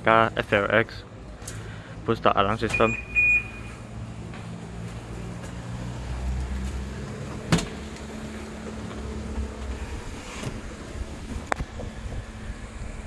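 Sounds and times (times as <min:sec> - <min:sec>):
electronic alarm chirp: 0:02.8 - 0:03.8
car engine idling: 0:03.1 - 0:13.0.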